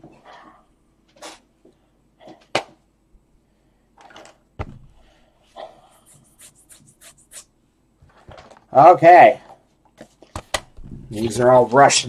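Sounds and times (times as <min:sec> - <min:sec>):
breathy sniffs: 0:05.5 - 0:07.5.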